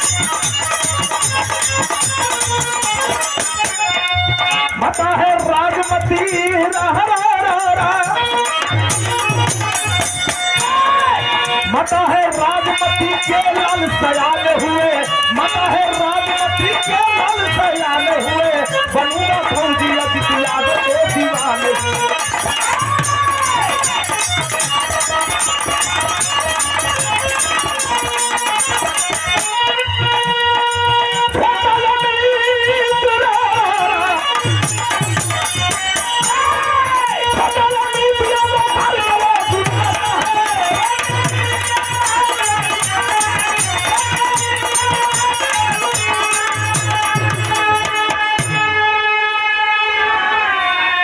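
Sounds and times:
jingling rattle percussion: 0.0 - 31.7, 32.4 - 48.7
hand drum rhythm: 0.0 - 48.7.

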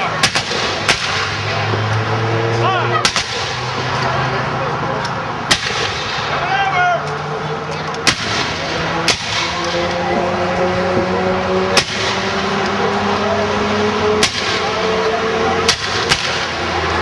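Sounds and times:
rifle shots: 0.2 - 1.4, 5.5 - 6.4, 8.0 - 9.8, 15.7 - 16.6.

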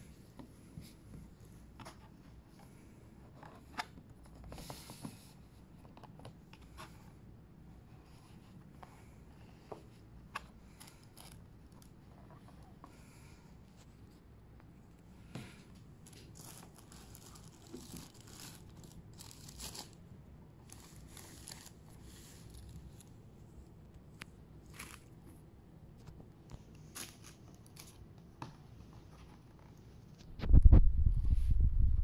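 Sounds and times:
tissue paper rustling and crinkling: 16.0 - 20.0, 20.6 - 23.1, 24.6 - 25.2.

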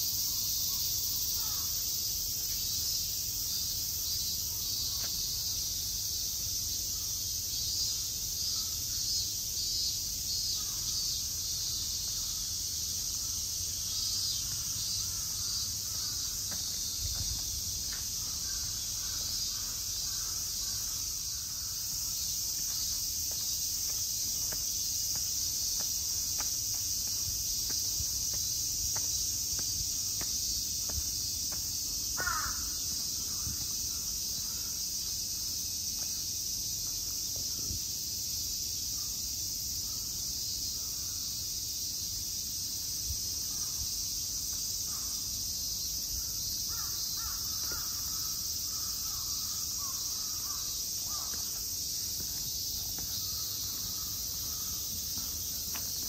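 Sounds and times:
high-pitched insect drone: 0.0 - 5.9, 7.6 - 35.7, 46.2 - 56.0
crows cawing: 1.4 - 1.8, 18.2 - 21.8, 32.2 - 33.6, 46.7 - 51.6, 53.2 - 54.9.

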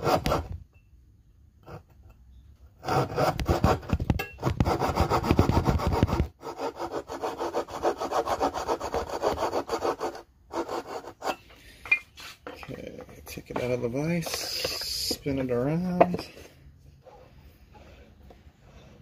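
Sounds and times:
hand saw rasping through wood: 0.0 - 0.6, 2.8 - 11.5.

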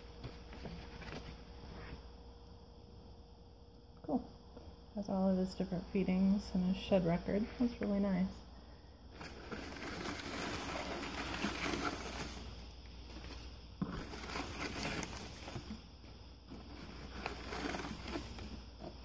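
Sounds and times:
newspaper rustling and crinkling: 9.2 - 19.0.

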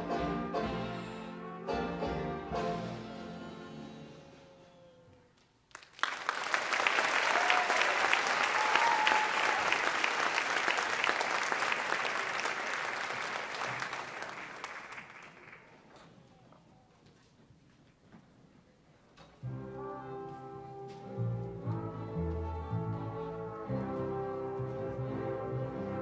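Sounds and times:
audience applauding: 5.7 - 15.9.

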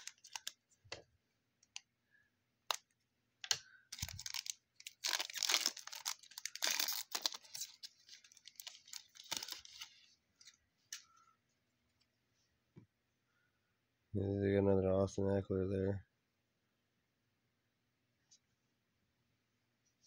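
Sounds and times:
foil wrapper crinkling and tearing: 0.0 - 0.6, 3.9 - 10.1.

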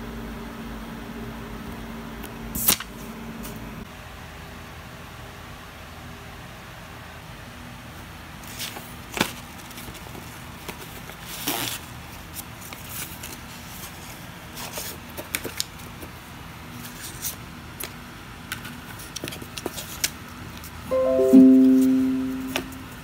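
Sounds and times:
paper snap: 2.6 - 2.9.

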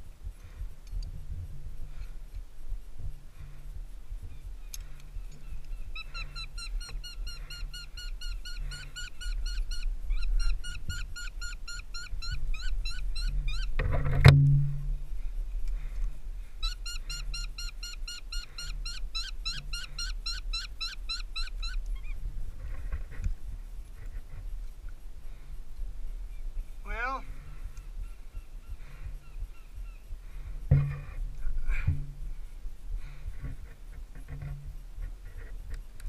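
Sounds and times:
shrill repeated bird calls: 4.3 - 13.8, 16.6 - 22.2.

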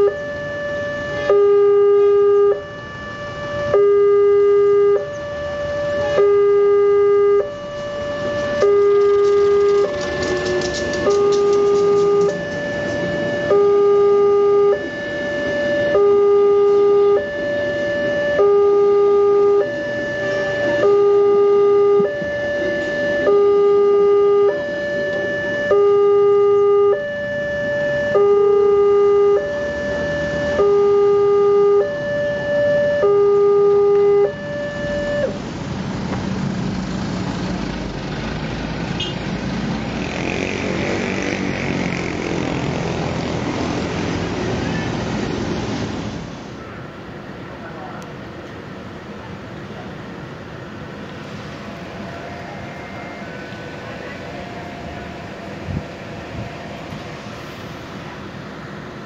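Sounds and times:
two-tone level crossing alarm: 0.0 - 35.4, 51.6 - 57.5
road vehicle engines: 0.0 - 59.0.

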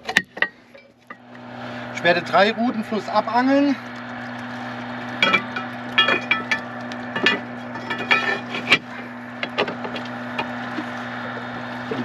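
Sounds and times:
steady low hum: 0.0 - 12.0
metal pole clinking on stones: 5.2 - 8.8.

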